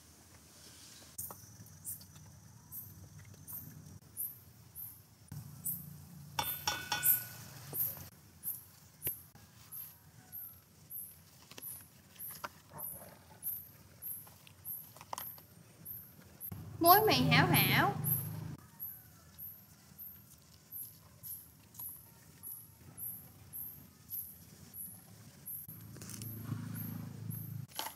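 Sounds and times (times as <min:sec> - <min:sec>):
insect chirping: 0:01.2 - 0:09.1.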